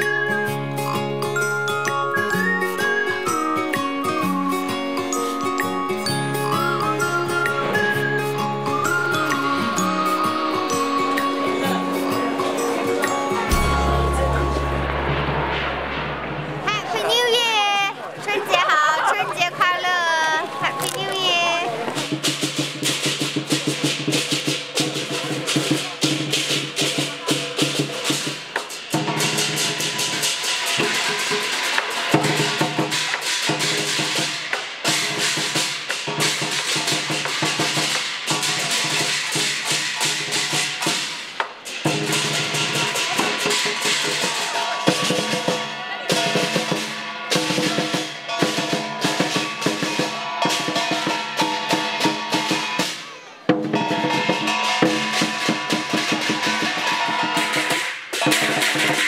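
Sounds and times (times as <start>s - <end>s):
drum and percussion beat: 0.0s - 59.0s
sustained chords: 9.6s - 17.0s.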